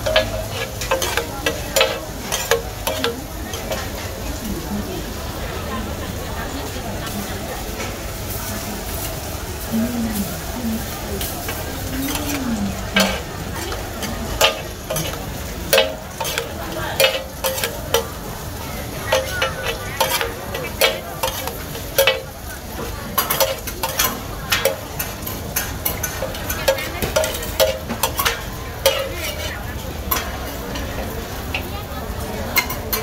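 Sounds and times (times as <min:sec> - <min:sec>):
metal spatulas scraping on griddle: 0:00.0 - 0:04.0, 0:11.2 - 0:30.6
noodles sizzling: 0:00.0 - 0:33.0.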